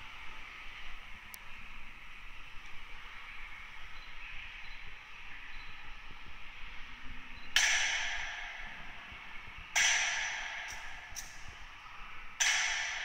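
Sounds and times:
sharp strikes echoing: 0:07.6 - 0:11.8, 0:12.4 - 0:13.0.

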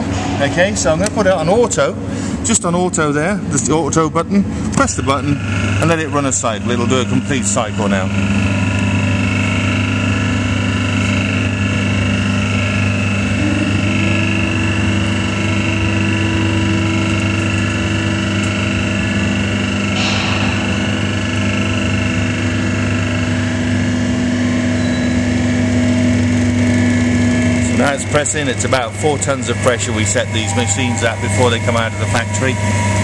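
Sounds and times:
hydraulic pump running: 0:00.0 - 0:33.0
higher steady tone: 0:19.9 - 0:22.7.

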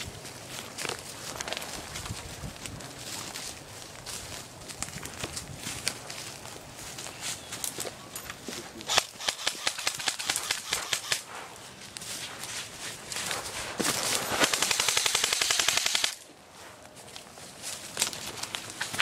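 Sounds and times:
footsteps in dry leaves: 0:00.0 - 0:15.0, 0:16.2 - 0:19.0
airsoft rifle full-auto burst: 0:08.9 - 0:11.3, 0:14.3 - 0:16.2.

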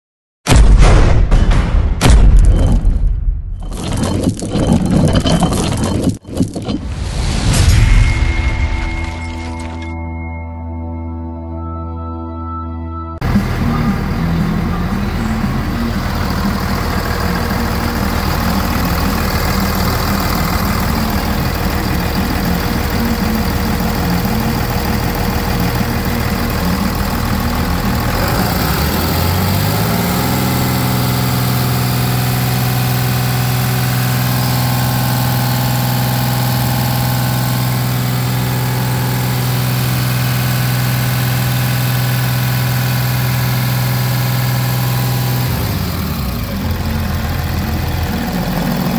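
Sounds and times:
diesel engine idling and revving: 0:13.2 - 0:48.9.

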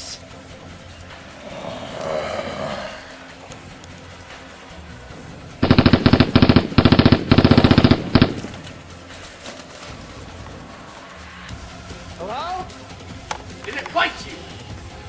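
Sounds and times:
automatic gunfire: 0:05.6 - 0:08.8.

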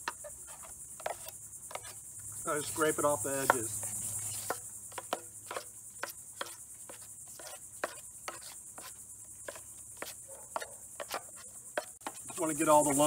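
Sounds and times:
knife scraping metal pan: 0:00.0 - 0:02.0
high-pitched insect drone: 0:00.0 - 0:13.0.

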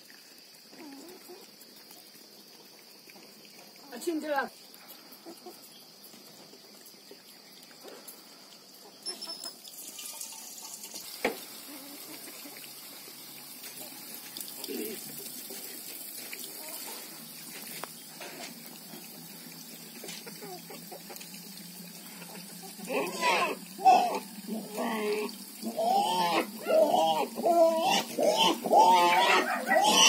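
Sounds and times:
tap water splashing into metal pot: 0:09.6 - 0:11.6.

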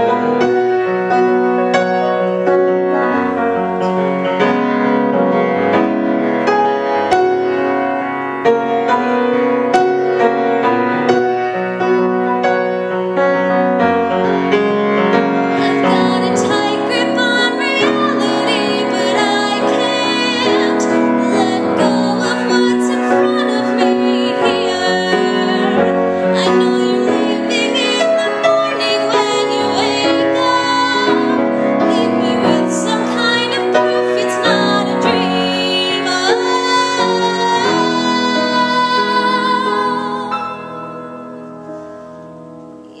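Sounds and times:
piano chords: 0:00.0 - 0:43.0
woman singing a pop ballad: 0:15.6 - 0:40.6.

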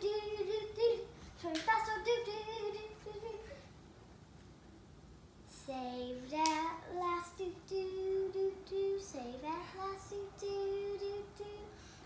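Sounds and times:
young boy singing: 0:00.0 - 0:03.7, 0:05.5 - 0:12.0.

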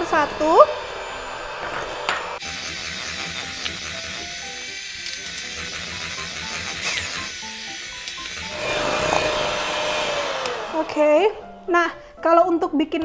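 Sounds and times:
electric hand mixer whirring: 0:00.0 - 0:11.6
background music melody: 0:03.3 - 0:13.0.

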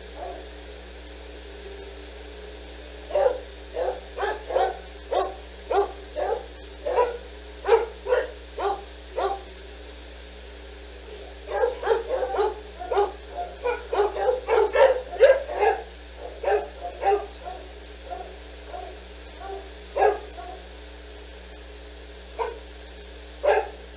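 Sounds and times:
dogs barking: 0:00.0 - 0:00.5, 0:03.1 - 0:09.5, 0:11.3 - 0:20.7, 0:22.3 - 0:22.7, 0:23.4 - 0:23.8.

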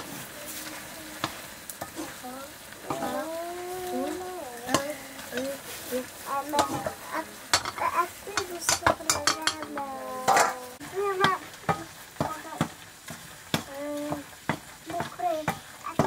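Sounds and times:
ladle clinking and scraping wok: 0:00.0 - 0:16.0
low sizzle: 0:00.0 - 0:16.0
voice-like calls: 0:02.0 - 0:08.6.

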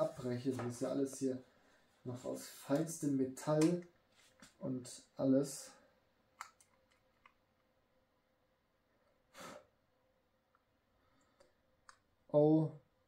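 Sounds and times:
faint clicks of handling: 0:06.4 - 0:07.7.

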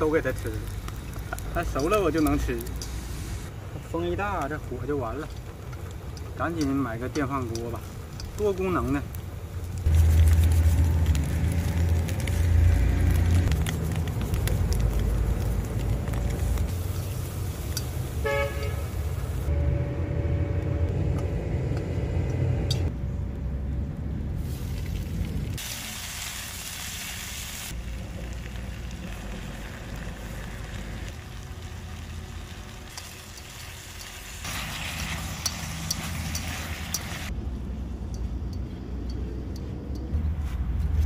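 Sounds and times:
vegetables sizzling in a pan: 0:00.0 - 0:03.5, 0:25.6 - 0:37.3
low rumble: 0:19.3 - 0:25.6.

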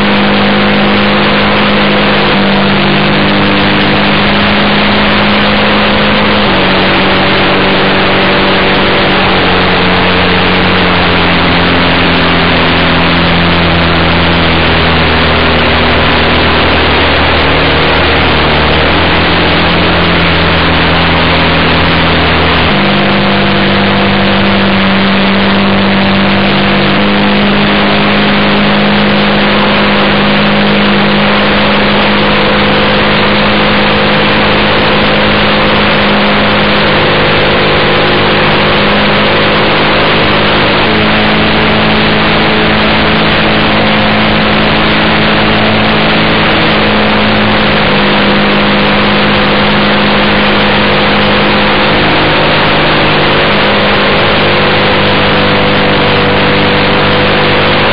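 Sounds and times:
model airplane engine and propeller: 0:00.0 - 0:57.9.

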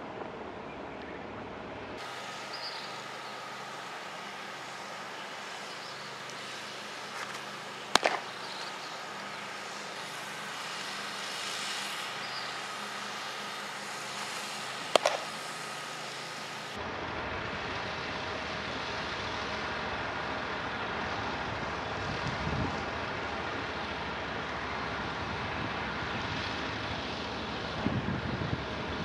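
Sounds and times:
outdoor background noise: 0:00.0 - 0:29.0
baseball smacking into glove: 0:07.2 - 0:08.4, 0:14.9 - 0:15.4.

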